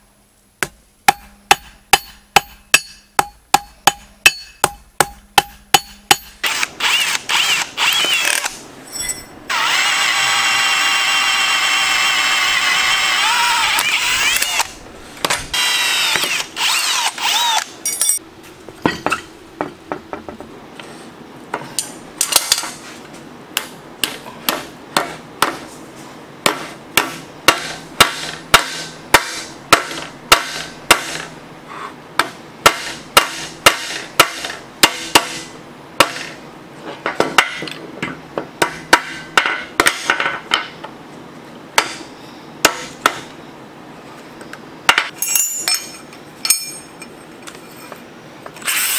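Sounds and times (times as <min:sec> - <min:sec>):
hammer striking steel bar: 0:00.6 - 0:06.4, 0:26.5 - 0:31.3, 0:32.2 - 0:36.4, 0:38.6 - 0:40.8, 0:41.8 - 0:43.3
drill boring through steel: 0:06.4 - 0:08.5, 0:09.5 - 0:14.7, 0:15.5 - 0:17.7, 0:48.6 - 0:48.9.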